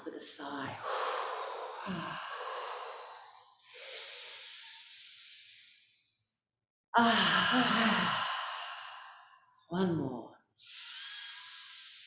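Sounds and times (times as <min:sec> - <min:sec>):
woman breathing deeply: 0:00.8 - 0:06.3, 0:07.0 - 0:09.6, 0:10.6 - 0:12.0
woman sighing: 0:01.8 - 0:02.6, 0:07.0 - 0:08.8.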